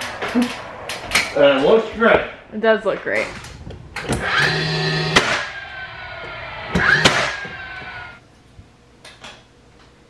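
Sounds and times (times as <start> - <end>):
nailer firing: 4.0 - 5.6, 6.7 - 8.0
nailer motor whine: 4.0 - 8.2.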